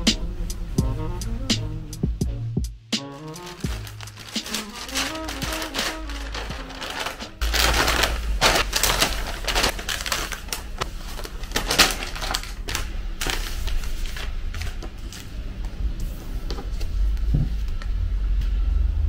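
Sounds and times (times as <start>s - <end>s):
low rumble: 0.0s - 19.0s
paper bag rustling: 3.0s - 15.4s.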